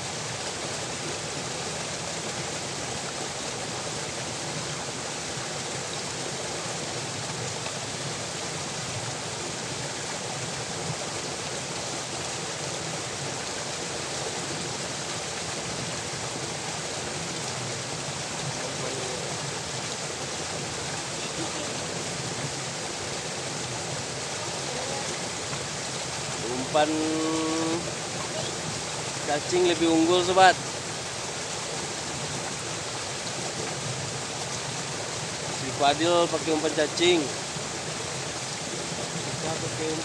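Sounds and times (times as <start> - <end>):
water rushing through channel: 0.0 - 40.0.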